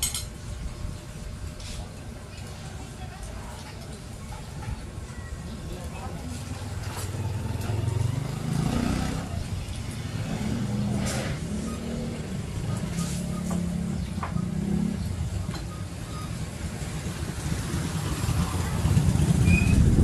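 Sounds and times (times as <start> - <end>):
utensils clinking on plates: 0.0 - 0.3.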